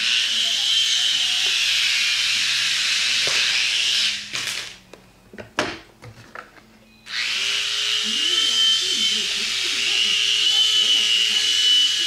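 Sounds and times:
small electric motor whining: 0.0 - 4.6, 7.1 - 12.0.

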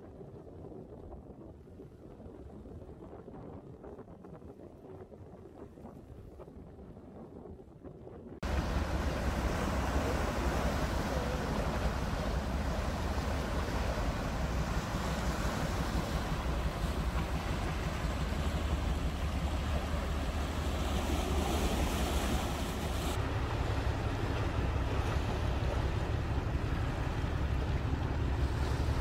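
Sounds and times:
wind rumbling on microphone: 0.0 - 29.0
sea waves washing around rocks: 8.4 - 29.0.

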